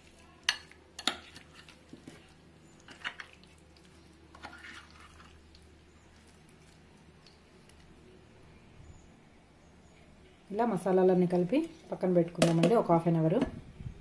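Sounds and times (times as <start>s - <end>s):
wet squelching of stirring: 0.0s - 8.4s
spoon scraping glass bowl: 4.3s - 5.4s.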